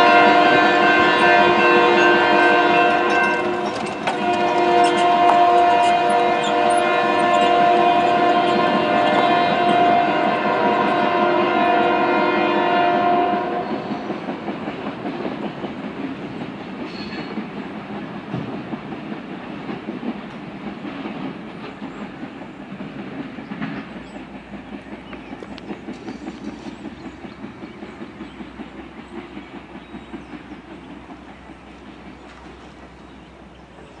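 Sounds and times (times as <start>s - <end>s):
wheels clicking over rail joints: 0.0s - 12.2s, 13.2s - 34.0s
train horn: 0.0s - 14.4s
train wheels rumbling on rail: 0.0s - 34.0s.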